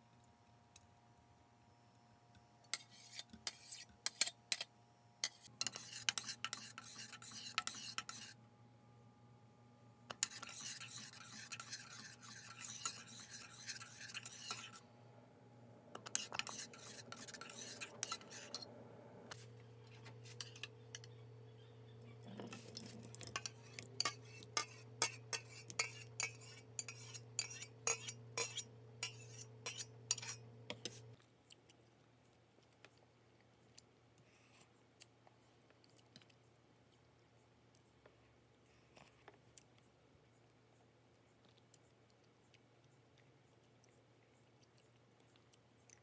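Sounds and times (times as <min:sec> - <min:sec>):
metal spoon scraping pot: 0:02.7 - 0:08.4, 0:10.1 - 0:14.8, 0:16.0 - 0:18.7, 0:20.2 - 0:21.1, 0:22.2 - 0:31.0
steady low hum: 0:04.8 - 0:31.2.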